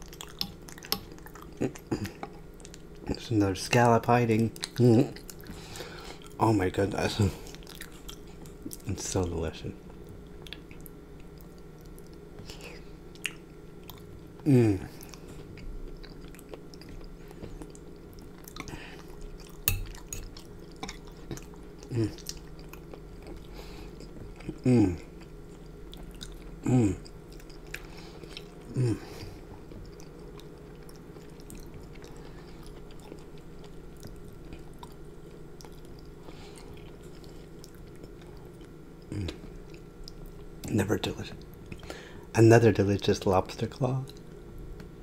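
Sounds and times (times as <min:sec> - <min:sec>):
close chewing: 0:00.0 - 0:03.2, 0:04.5 - 0:05.6, 0:07.4 - 0:08.9, 0:14.9 - 0:40.5
person humming with enjoyment: 0:14.4 - 0:15.0, 0:24.5 - 0:25.0, 0:26.6 - 0:27.0, 0:28.7 - 0:29.2.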